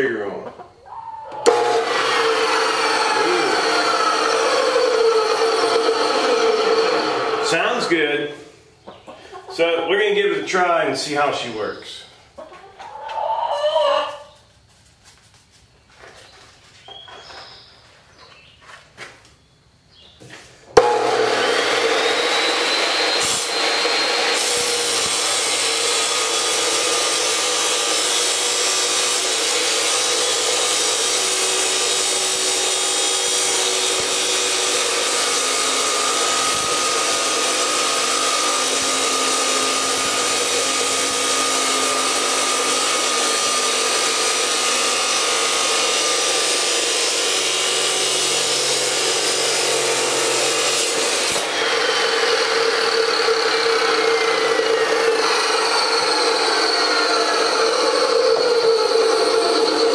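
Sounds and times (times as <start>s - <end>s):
abrasive wheel grinding metal: 1.4s - 7.8s, 20.8s - 59.9s
chop saw motor whine: 1.4s - 7.9s, 20.8s - 59.9s.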